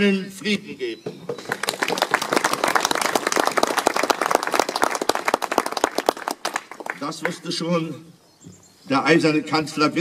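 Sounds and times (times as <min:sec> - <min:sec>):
audience applauding: 0:01.4 - 0:07.4.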